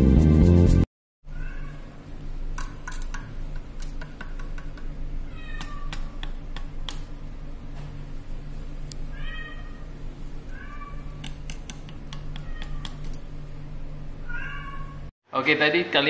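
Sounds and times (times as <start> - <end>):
background music: 0.0 - 0.9
cat meowing: 1.3 - 1.8, 5.3 - 5.9, 9.1 - 9.9, 10.5 - 11.2, 12.3 - 13.0, 14.2 - 15.1
sharp clicks: 11.2 - 13.2.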